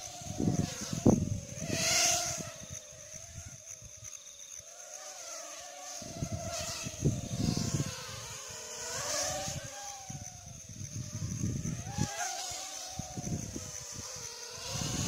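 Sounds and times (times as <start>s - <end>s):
wind rumble on microphone: 0.0s - 4.1s, 5.9s - 15.0s
quadcopter motors whining: 0.0s - 15.0s.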